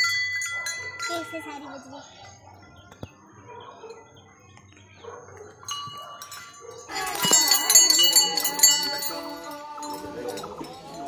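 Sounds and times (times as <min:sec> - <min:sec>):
small metal bell ringing: 0:00.0 - 0:01.8, 0:05.6 - 0:11.0.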